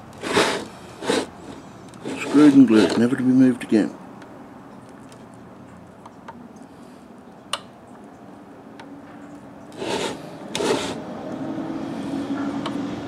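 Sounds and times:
plastic scraping on plastic: 0.0 - 3.2, 9.7 - 11.0.

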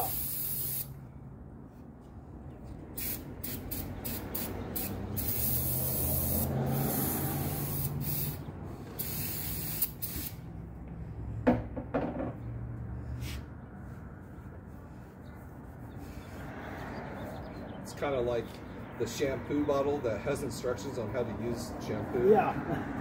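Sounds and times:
aerosol can spraying: 0.0 - 0.9, 3.0 - 10.4.

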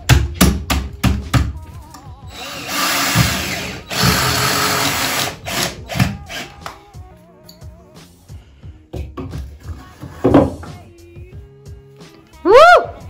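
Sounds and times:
cordless drill driving screws: 2.3 - 6.5.

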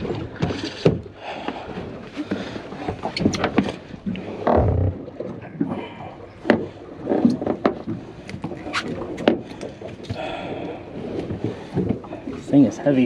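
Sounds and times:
low thump on boat deck: 4.4 - 5.1.

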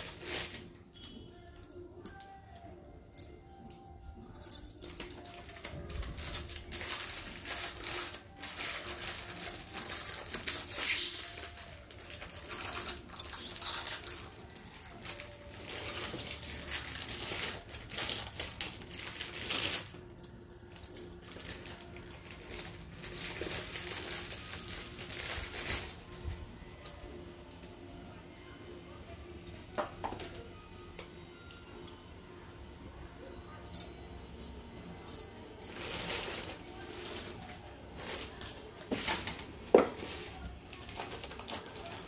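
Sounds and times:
glass bangles clinking: 0.0 - 27.2, 29.3 - 30.2, 33.5 - 37.2.

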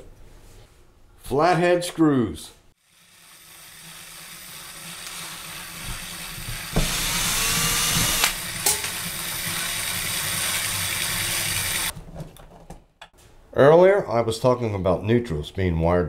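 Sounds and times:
cordless drill spinning: 2.8 - 11.9
drill click: 3.5 - 8.9.

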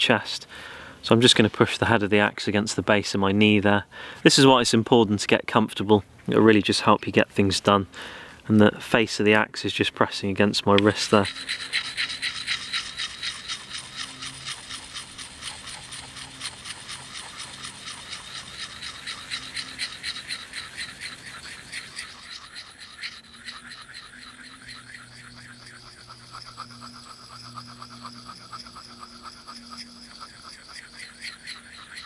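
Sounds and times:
stone scraping axe edge: 10.8 - 29.1.

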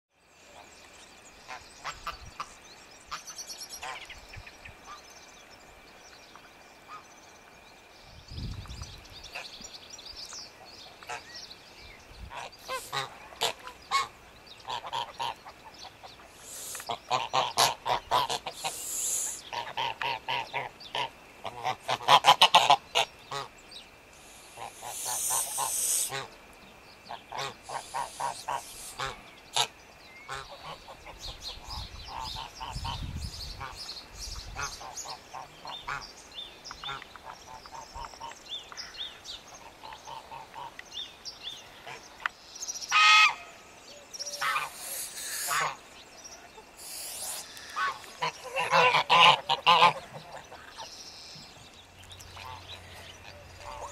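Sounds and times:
geese honking: 12.3 - 15.6, 16.4 - 23.5, 24.5 - 26.3, 27.1 - 29.7, 42.9 - 43.5, 44.3 - 45.8, 46.8 - 50.8, 52.4 - 53.9.

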